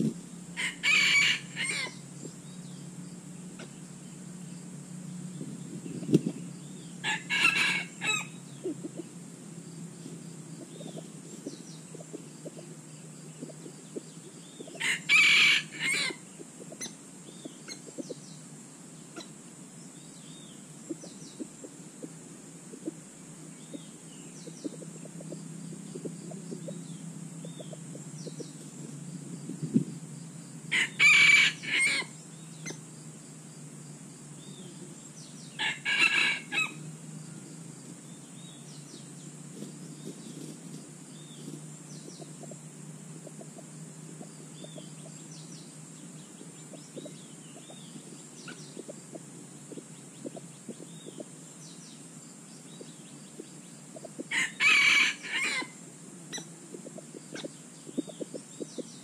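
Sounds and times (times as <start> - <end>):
rooster crowing: 0.6 - 2.0, 7.0 - 8.4, 14.8 - 16.2, 30.7 - 32.2, 35.5 - 36.9, 54.3 - 55.8
faint bird chirps: 0.8 - 33.1, 43.3 - 59.0.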